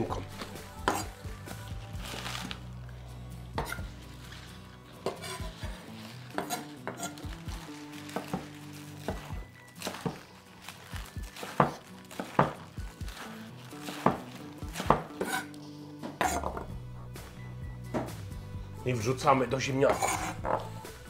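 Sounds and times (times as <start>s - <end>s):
knife chopping on wooden board: 11.4s - 12.6s, 13.8s - 16.7s.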